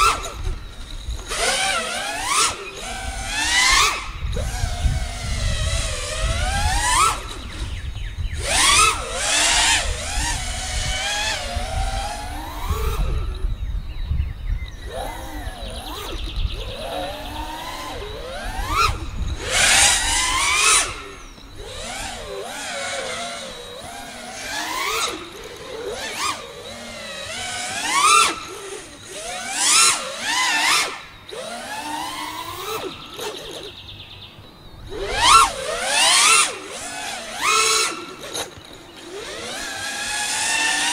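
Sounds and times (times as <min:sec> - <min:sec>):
wind rumbling on microphone: 0:00.0 - 0:30.0
drone motors whining: 0:00.0 - 0:40.9.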